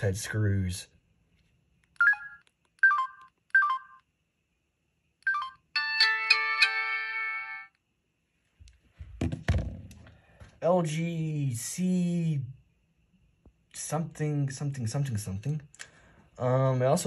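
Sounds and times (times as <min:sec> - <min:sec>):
two-note phone key beeps: 0:02.0 - 0:04.0.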